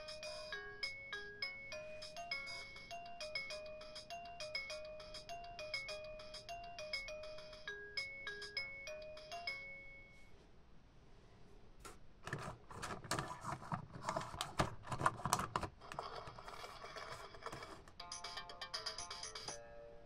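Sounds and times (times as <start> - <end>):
toy playing electronic tune: 0.0 - 10.2, 16.0 - 19.6
plastic toy clicking and clattering: 12.2 - 18.0.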